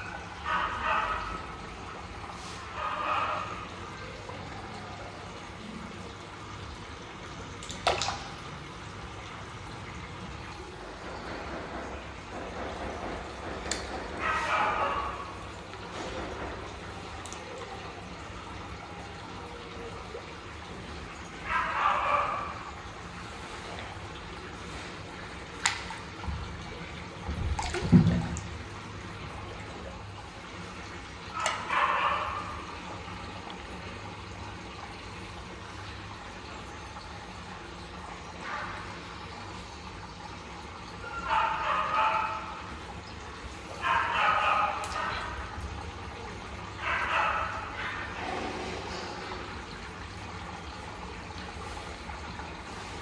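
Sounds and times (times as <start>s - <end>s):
water splashing in fish tank: 0.0s - 53.0s
fish splash: 7.6s - 8.5s, 27.3s - 29.0s.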